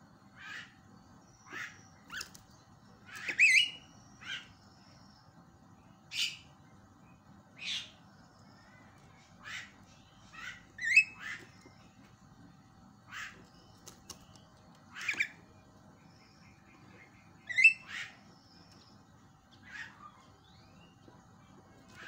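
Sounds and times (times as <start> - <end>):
bird giving harsh raspy calls: 9.4 - 11.6, 13.0 - 13.5, 17.0 - 18.4, 19.6 - 20.2.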